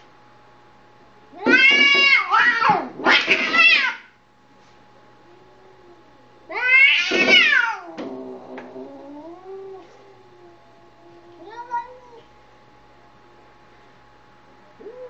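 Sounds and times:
cat growling: 0:01.4 - 0:04.0, 0:05.2 - 0:12.2, 0:14.8 - 0:15.0
cats screeching: 0:01.4 - 0:04.1, 0:06.5 - 0:10.6.

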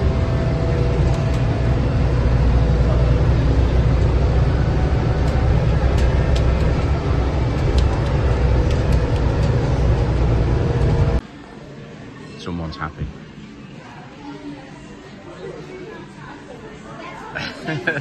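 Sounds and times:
road rumble: 0:00.0 - 0:11.2
bus engine drone: 0:00.0 - 0:18.0.

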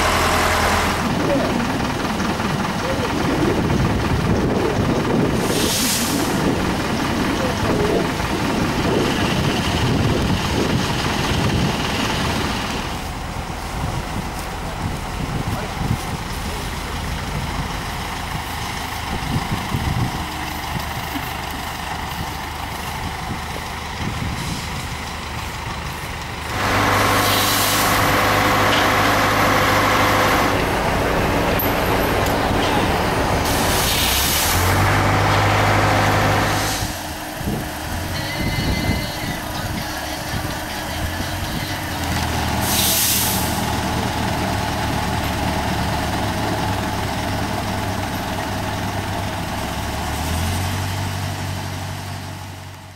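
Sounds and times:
heavy truck engine running: 0:00.0 - 0:52.9
short air hisses: 0:05.4 - 0:06.4, 0:33.4 - 0:34.7, 0:42.6 - 0:43.7.

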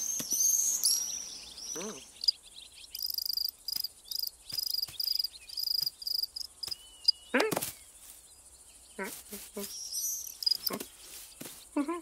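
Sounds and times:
cartoon cricket chirping: 0:03.0 - 0:07.3, 0:09.9 - 0:10.8.

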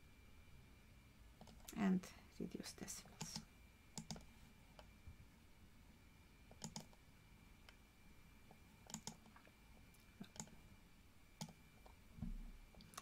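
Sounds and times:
faint computer mouse clicks: 0:06.6 - 0:07.0, 0:08.9 - 0:09.3.

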